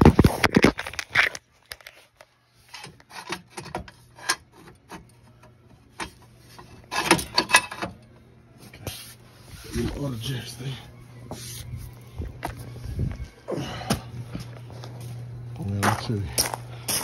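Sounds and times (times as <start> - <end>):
metal jack stand clinking and scraping: 6.0 - 8.0.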